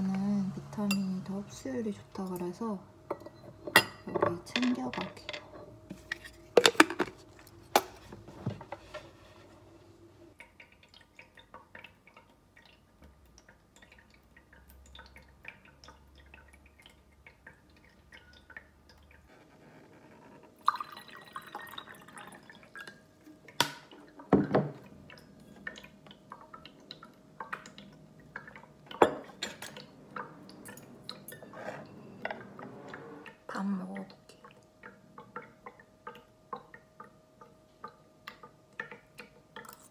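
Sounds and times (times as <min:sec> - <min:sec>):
water filter dripping: 0:10.3 - 0:19.4, 0:20.6 - 0:31.4, 0:33.2 - 0:39.9
tableware clinking: 0:28.9 - 0:33.2.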